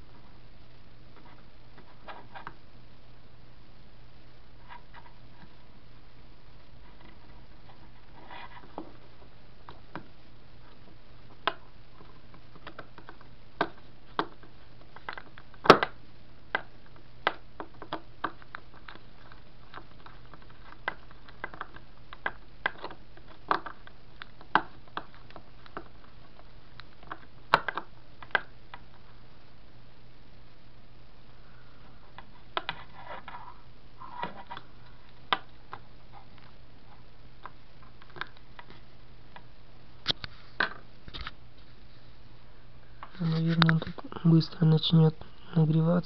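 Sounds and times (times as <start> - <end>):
steady low hum: 0.0 - 46.0.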